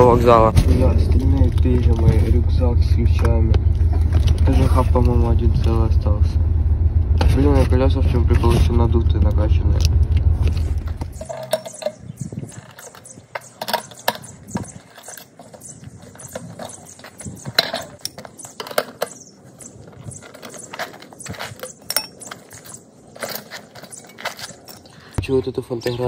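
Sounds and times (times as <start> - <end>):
low rumble: 0.0 - 11.4
metallic clicks and clinks: 21.6 - 22.5.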